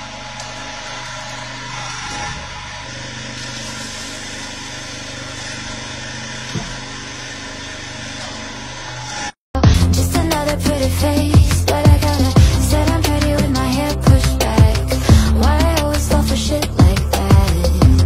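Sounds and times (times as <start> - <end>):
hydraulic press motor hum: 0.0 - 9.4
deep bass drum beat: 9.6 - 18.0
loud music: 9.6 - 18.0
sustained bass line: 9.6 - 18.0.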